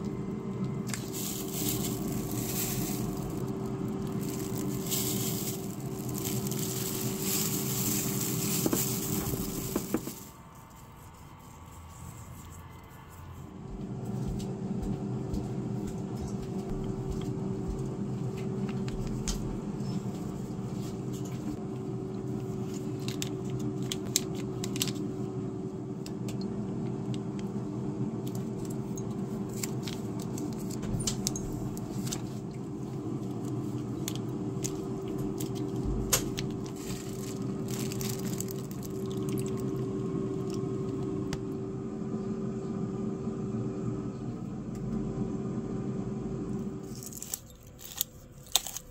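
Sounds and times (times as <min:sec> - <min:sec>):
low machine hum: 0:00.0 - 0:48.9
plastic sachets crinkling: 0:00.6 - 0:12.5, 0:22.6 - 0:25.0, 0:33.3 - 0:39.8, 0:46.8 - 0:48.9.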